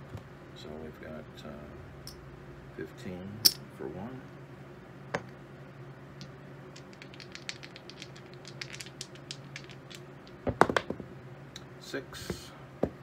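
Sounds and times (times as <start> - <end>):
faint steady hum: 0.0 - 13.0
dice rattling in hand: 6.2 - 10.9
dice landing on felt table: 6.8 - 11.0.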